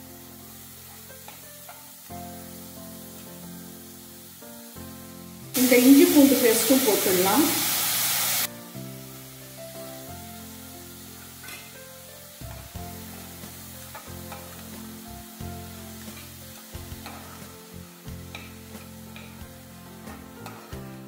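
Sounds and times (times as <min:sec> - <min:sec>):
onions sizzling in oil: 0:00.0 - 0:21.0
soft background music: 0:00.0 - 0:21.0
spatula scraping pan: 0:11.2 - 0:11.8, 0:16.0 - 0:17.5, 0:18.2 - 0:19.5.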